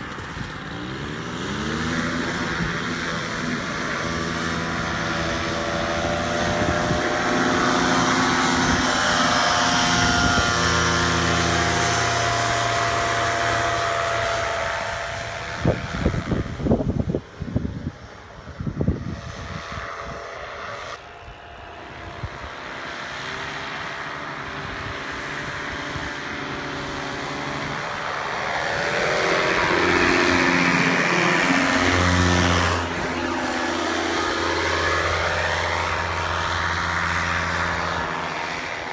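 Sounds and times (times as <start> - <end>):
wind on microphone: 0.0 - 20.5
paramotor engine and propeller: 0.0 - 38.9.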